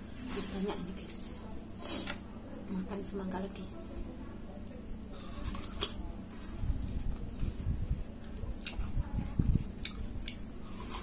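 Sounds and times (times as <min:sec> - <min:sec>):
chewing watermelon: 0:04.7 - 0:11.0.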